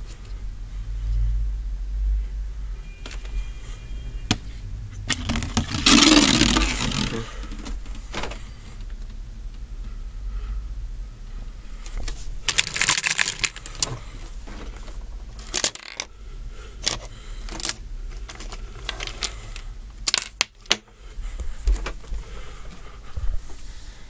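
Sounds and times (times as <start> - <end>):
plastic toys clicking and clattering: 5.1 - 9.1, 11.9 - 16.1, 16.8 - 20.9.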